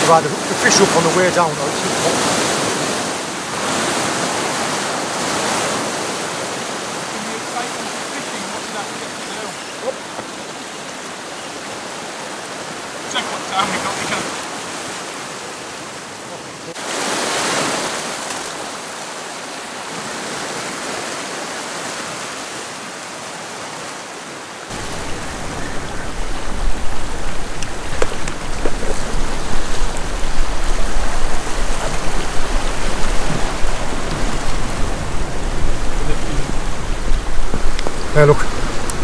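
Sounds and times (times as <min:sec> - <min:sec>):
sea water rushing around rocks: 0:00.0 - 0:39.0
wind rumble on microphone: 0:24.7 - 0:39.0.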